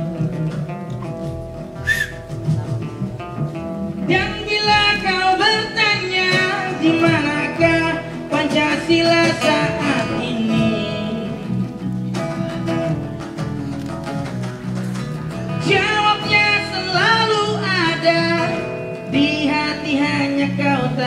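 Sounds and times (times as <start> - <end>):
acoustic guitars strumming: 0.0 - 21.0
person singing: 4.0 - 11.8, 15.5 - 21.0.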